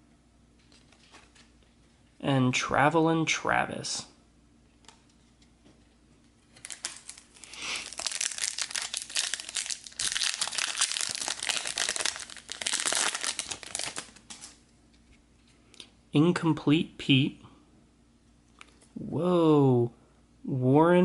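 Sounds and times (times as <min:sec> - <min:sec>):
foil wrapper tearing and crinkling: 0:06.5 - 0:14.6.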